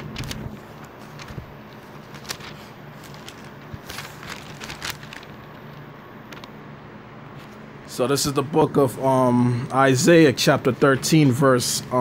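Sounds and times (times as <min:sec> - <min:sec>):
handling clicks and rustles: 0:00.0 - 0:06.6
low steady hum: 0:00.0 - 0:12.0.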